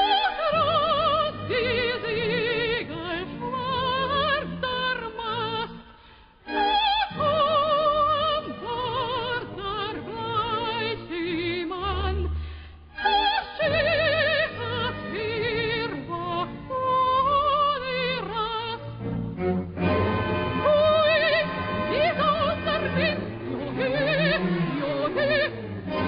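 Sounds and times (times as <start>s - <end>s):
operatic soprano singing: 0.0s - 19.0s, 19.8s - 26.0s
orchestra playing: 18.9s - 26.0s.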